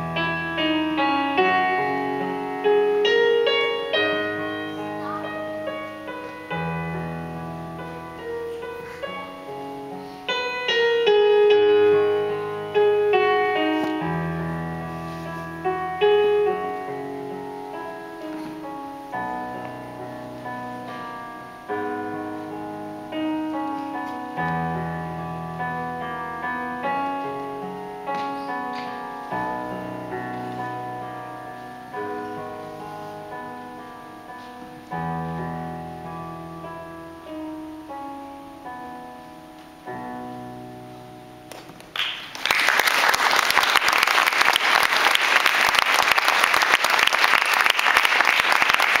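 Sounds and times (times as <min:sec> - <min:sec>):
solo piano chords: 0:00.0 - 0:42.1
audience applause: 0:41.8 - 0:49.0.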